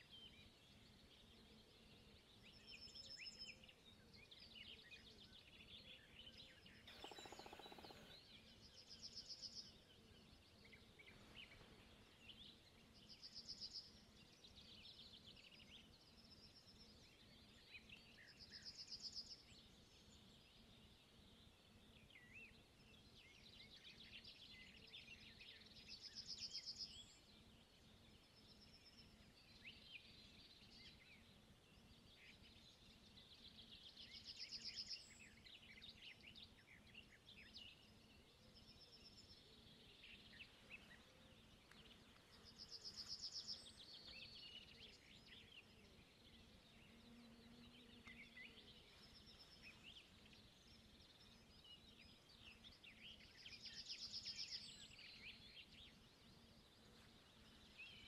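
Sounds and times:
faint low hum: 6.6 - 9.1
small birds calling: 6.8 - 8.3
songbird song ending in trill: 6.8 - 8.3.

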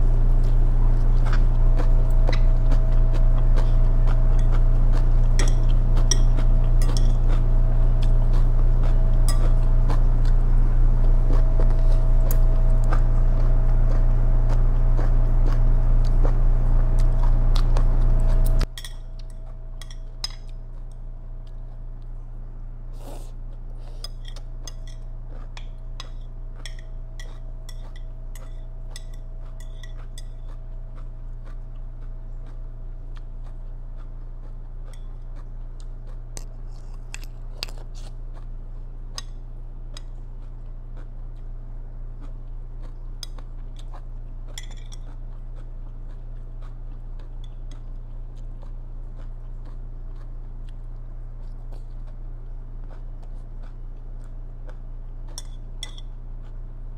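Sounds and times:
crunching and chewing: 0.0 - 56.9
steady low hum: 0.0 - 56.9
chopsticks clicking on plate: 55.3 - 56.1.

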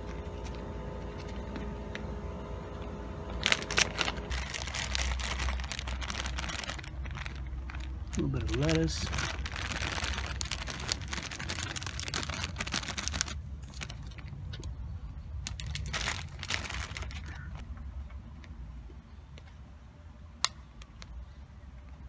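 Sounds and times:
plastic bag rustling: 3.3 - 14.3, 15.4 - 17.6.

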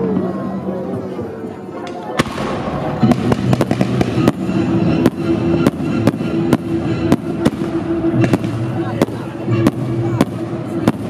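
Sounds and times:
fireworks bangs: 2.2 - 11.0
music with sustained tones: 2.4 - 11.0.

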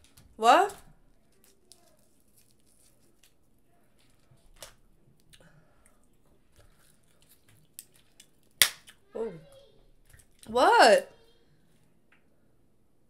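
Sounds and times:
crab legs cracking: 6.6 - 9.1.

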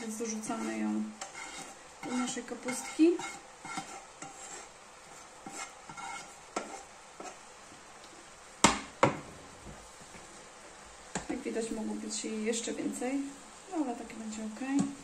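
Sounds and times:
spatula scraping frying pan: 0.0 - 7.6
frying pan knocking on hob: 8.6 - 9.3.

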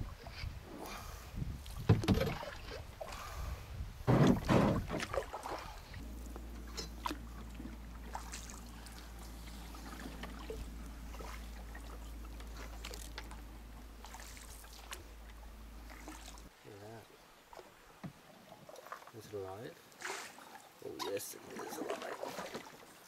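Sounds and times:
low hum: 0.0 - 16.5
paddle splashing: 0.0 - 16.6, 17.2 - 23.0
water drips and clicks: 6.2 - 16.5.

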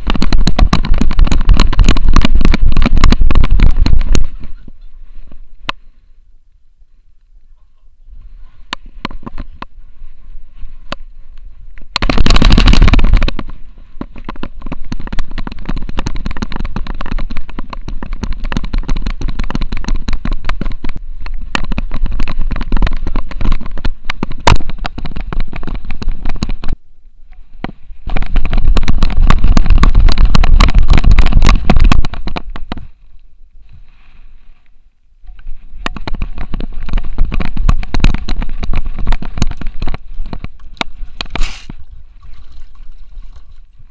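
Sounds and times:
wind buffeting: 0.0 - 5.9, 8.1 - 26.8, 27.9 - 33.0.

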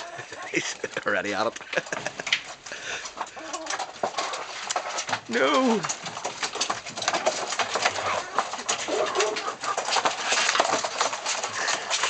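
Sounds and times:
sharp clicks and rustling: 0.0 - 12.0.

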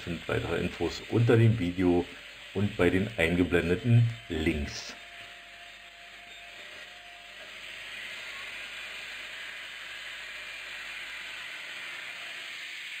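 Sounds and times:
grinder on steel pipe: 0.0 - 13.0.

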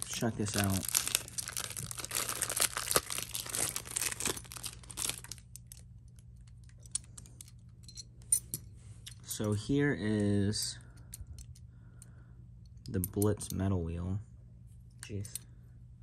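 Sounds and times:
plastic bag crinkling and tearing: 0.0 - 5.8.

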